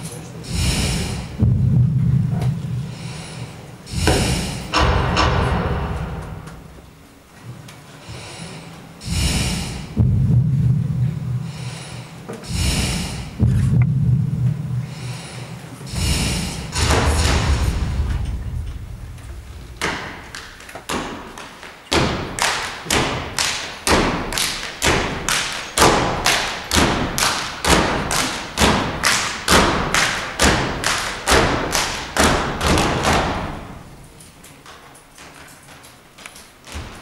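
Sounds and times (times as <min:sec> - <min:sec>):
foot stomps: 0:03.9 - 0:06.9, 0:12.4 - 0:14.2, 0:15.9 - 0:33.7, 0:35.2 - 0:37.0
hand claps: 0:19.8 - 0:33.5.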